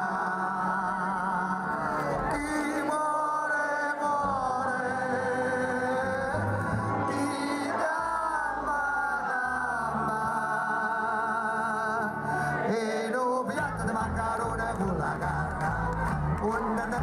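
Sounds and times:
steady bass notes: 13.6s - 17.0s.

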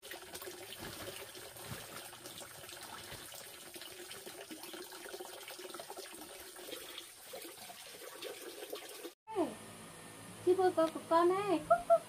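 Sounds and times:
plastic sacks rustling and knocking: 0.7s - 3.4s.

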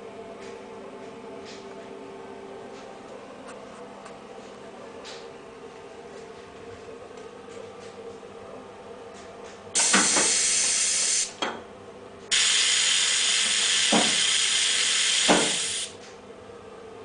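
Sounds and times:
loud steady hiss: 9.8s - 11.4s, 12.3s - 16.0s.

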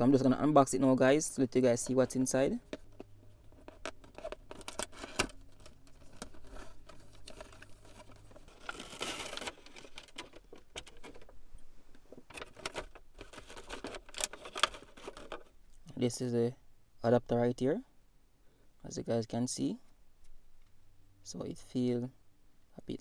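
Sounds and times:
plastic packaging crinkling: 2.6s - 15.5s
clicks taps and scrapes: 2.7s - 8.5s
cardboard box opened: 2.8s - 11.4s, 12.1s - 15.5s.

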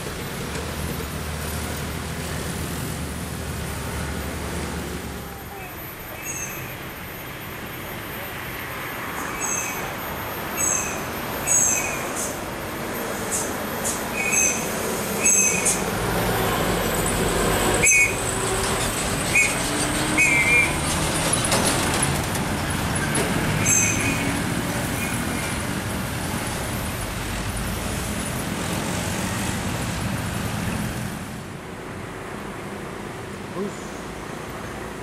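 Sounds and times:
trucks and traffic passing: 0.0s - 35.0s
high-pitched squeaks: 17.8s - 21.8s.

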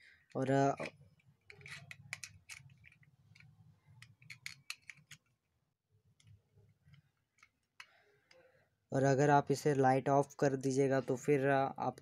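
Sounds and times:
plastic clicks and taps: 0.7s - 5.3s.

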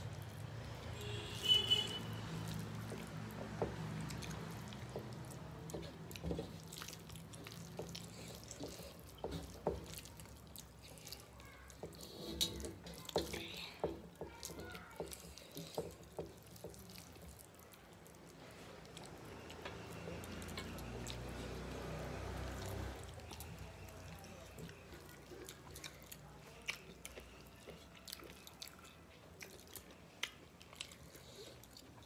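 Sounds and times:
fingers squishing rice and curry: 0.0s - 32.0s
wet chewing smacks: 0.0s - 32.0s.

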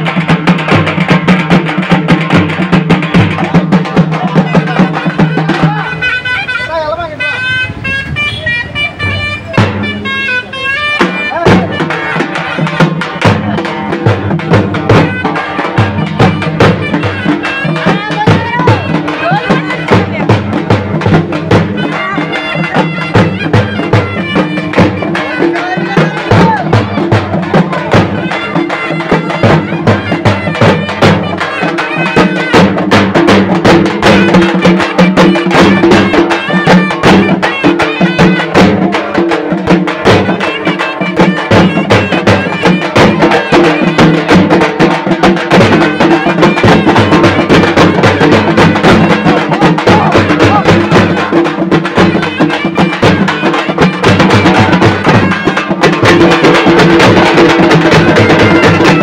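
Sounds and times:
fast dense drumming: 0.0s - 6.1s, 11.0s - 59.0s
wind instrument droning: 5.0s - 13.0s.

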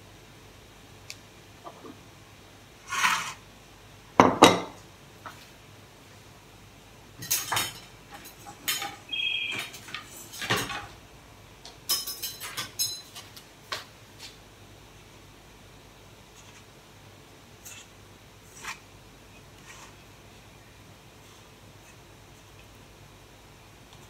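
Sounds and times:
kitchen utensils and dishes clattering: 7.2s - 11.0s, 11.8s - 13.4s.

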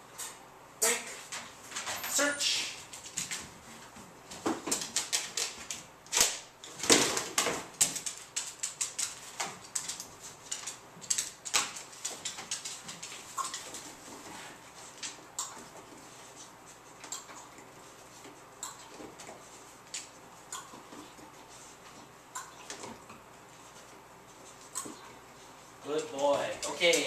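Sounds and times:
dog claws clicking on plastic: 4.5s - 13.7s.

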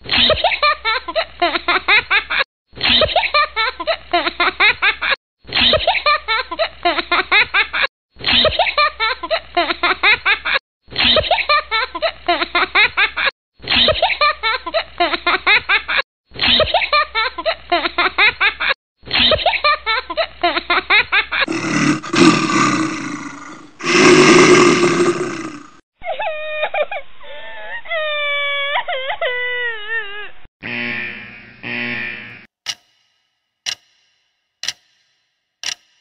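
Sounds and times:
boy laughing: 0.1s - 16.0s
rough roar-like sound: 21.5s - 25.8s.

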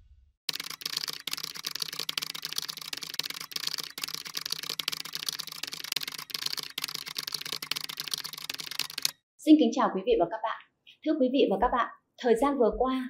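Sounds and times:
computer keyboard typing: 0.5s - 9.2s.

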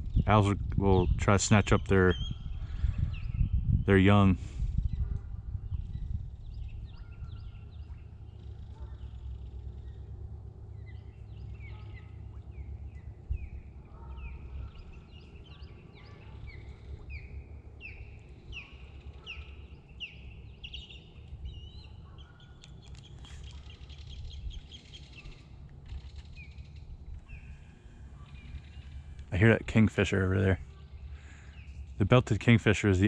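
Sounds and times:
low steady rumble: 0.0s - 33.0s
osprey whistled calls: 10.8s - 29.2s.

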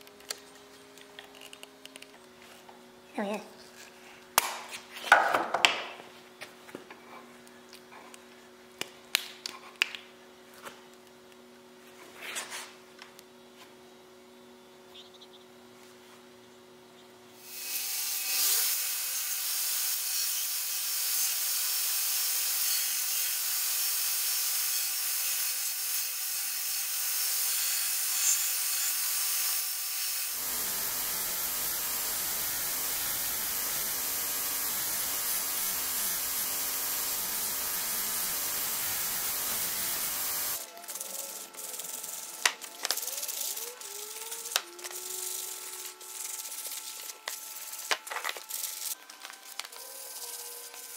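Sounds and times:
belt grinder grinding wood: 17.4s - 50.9s
hand sanding rubbing strokes: 30.3s - 50.9s.

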